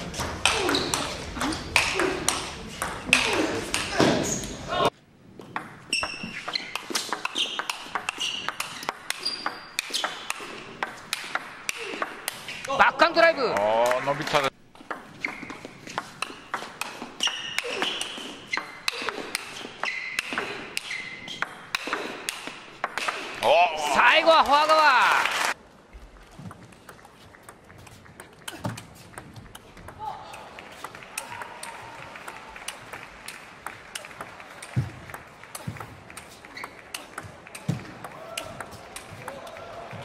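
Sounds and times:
shoes squeaking on floor: 0:00.6 - 0:02.1, 0:03.3 - 0:04.7, 0:05.8 - 0:10.7, 0:14.9 - 0:21.6, 0:35.6 - 0:37.9.

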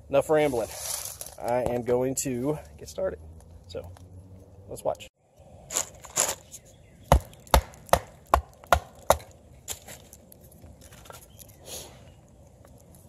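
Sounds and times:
knife chopping wood: 0:07.1 - 0:09.3.

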